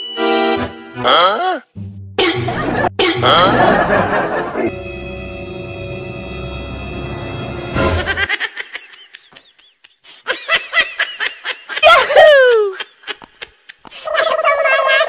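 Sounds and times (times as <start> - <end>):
music: 0.0 - 1.2, 1.8 - 8.3
high-pitched comic laughter: 2.2 - 4.7, 7.9 - 15.0
laugh sliding down in pitch: 2.3 - 4.7.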